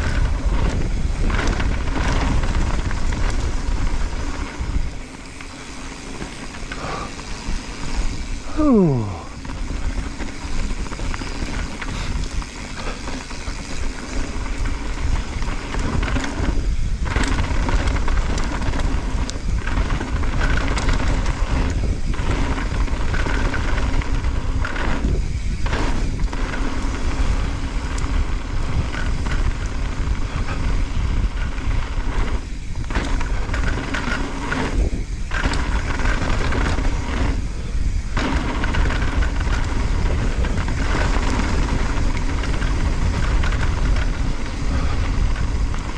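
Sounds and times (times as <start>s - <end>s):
bike clattering and rattling: 0.0s - 45.9s
knobby tyres crunching over gravel: 0.0s - 45.9s
wind on microphone: 0.0s - 45.9s.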